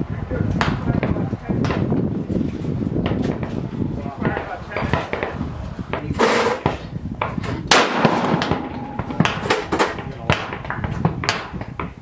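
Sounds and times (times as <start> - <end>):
rifle shots echoing: 7.7 - 10.5.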